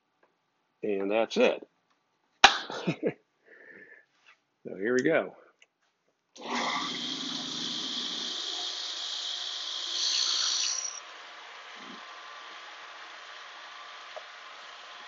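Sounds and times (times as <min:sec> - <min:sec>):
drill bit boring into wood: 0:06.4 - 0:15.0
drill press motor whine: 0:06.4 - 0:15.0.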